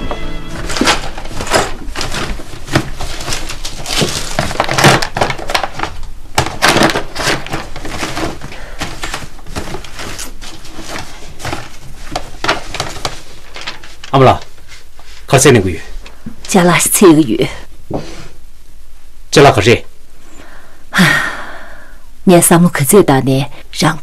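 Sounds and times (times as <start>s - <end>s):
paper rustling: 0.0s - 15.3s.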